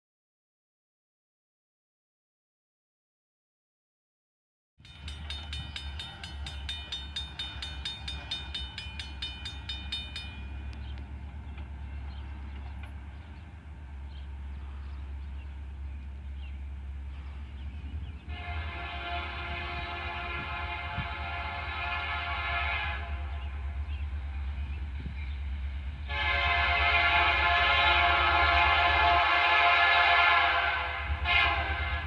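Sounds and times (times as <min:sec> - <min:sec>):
crossing bell ringing: 0:04.8 - 0:11.0
distant locomotive horn chord: 0:14.1 - 0:24.8, 0:26.0 - 0:32.0.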